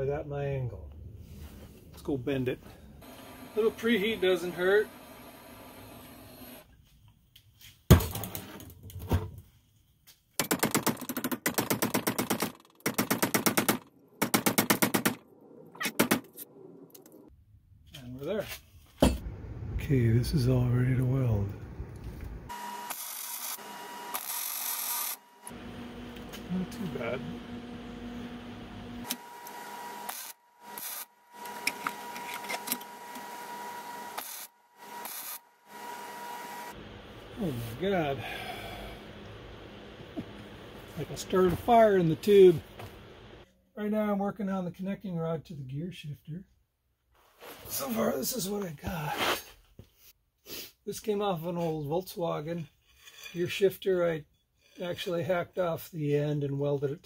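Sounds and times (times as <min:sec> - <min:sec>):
welder arc crackling and hissing: 0:03.0 - 0:06.6, 0:19.9 - 0:31.9, 0:34.1 - 0:35.4, 0:36.6 - 0:43.4.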